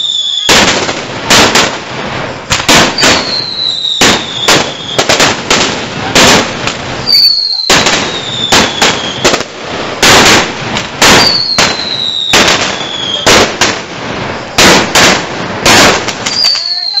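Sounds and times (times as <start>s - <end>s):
firecrackers banging: 0.0s - 17.0s
falling whistle: 3.2s - 5.0s, 7.1s - 9.2s, 16.4s - 17.0s.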